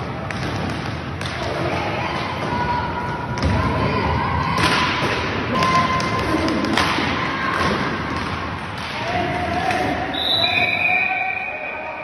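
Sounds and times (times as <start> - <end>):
hockey sticks and puck knocking: 4.6 - 10.1.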